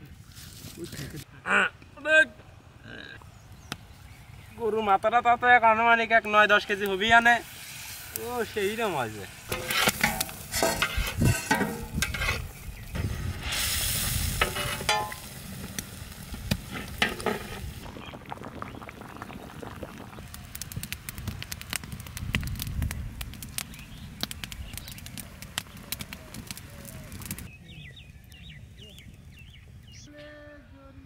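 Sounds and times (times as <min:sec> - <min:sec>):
gravy sizzling: 0:06.0 - 0:27.5
ladle scraping pot: 0:09.5 - 0:12.5, 0:14.4 - 0:15.2, 0:16.7 - 0:17.6
gravy bubbling and popping: 0:14.9 - 0:27.5.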